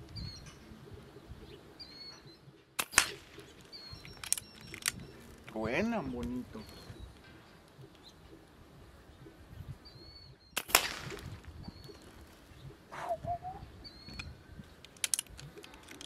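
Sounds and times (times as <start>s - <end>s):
small birds chirping: 0.0s - 16.0s
air rifle shot: 2.8s - 3.4s, 10.6s - 11.4s.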